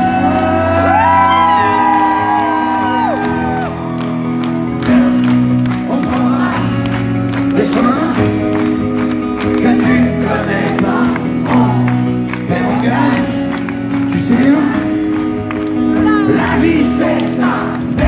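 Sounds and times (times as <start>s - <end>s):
audience whooping: 0.0s - 5.4s
man singing into a microphone: 4.9s - 8.6s, 9.4s - 15.2s, 16.0s - 18.0s.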